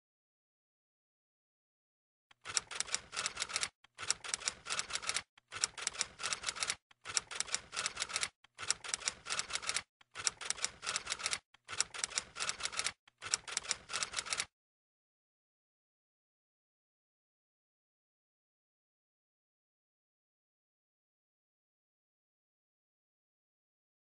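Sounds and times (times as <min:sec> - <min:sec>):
typewriter keys clacking: 0:02.5 - 0:14.5.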